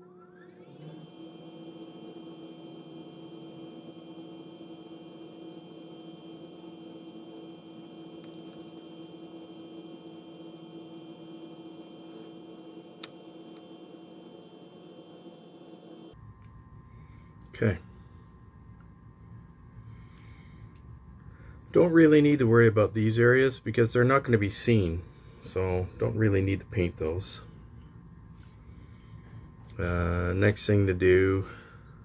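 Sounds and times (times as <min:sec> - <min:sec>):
small electric motor humming: 0:00.0 - 0:16.2.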